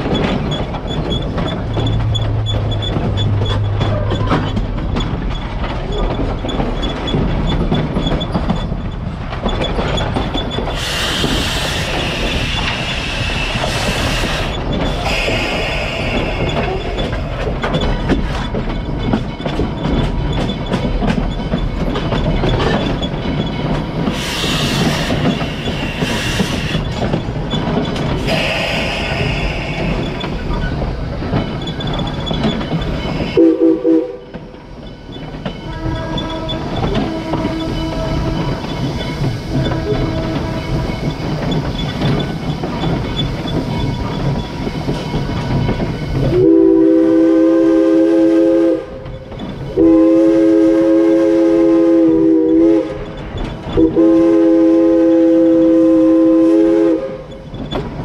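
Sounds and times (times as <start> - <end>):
steam locomotive rumbling: 0.0 - 58.0
wheels clattering on rails: 0.0 - 58.0
steam hissing bursts: 10.7 - 17.1, 24.1 - 27.1, 28.2 - 30.6.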